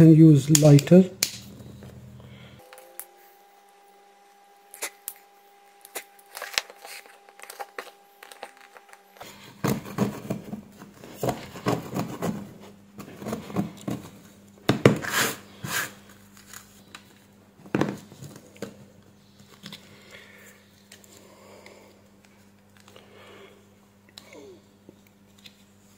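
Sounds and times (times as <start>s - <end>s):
faint steady hum: 0.0s - 25.9s
hands crinkling and scraping plastic: 4.7s - 14.4s.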